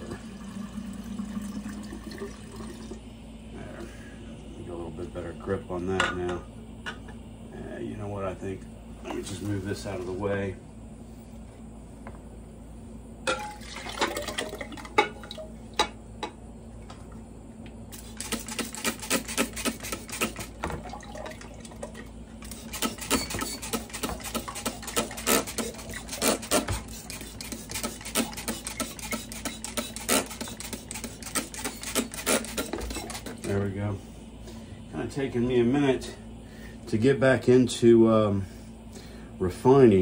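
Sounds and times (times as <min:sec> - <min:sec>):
liquid pouring and sloshing: 0:00.0 - 0:03.1, 0:13.3 - 0:15.6, 0:20.0 - 0:29.2
spray bottle squirts: 0:17.9 - 0:20.6, 0:22.4 - 0:33.4.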